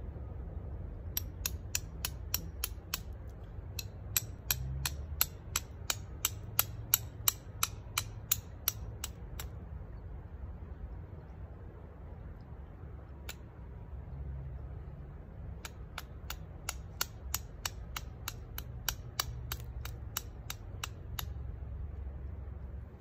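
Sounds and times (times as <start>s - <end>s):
flint struck with steel striker: 1.1s - 9.6s, 15.6s - 21.4s.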